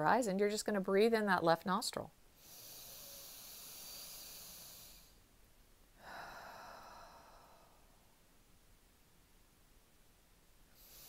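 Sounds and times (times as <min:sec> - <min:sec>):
woman inhaling through nose: 0:02.4 - 0:05.2, 0:10.7 - 0:11.0
woman exhaling: 0:06.0 - 0:08.1.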